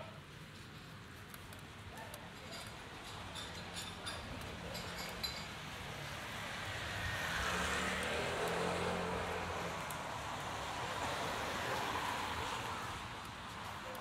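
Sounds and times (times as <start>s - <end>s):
vehicle engine hum: 5.6s - 14.0s
tyre hiss on wet road: 6.0s - 13.8s.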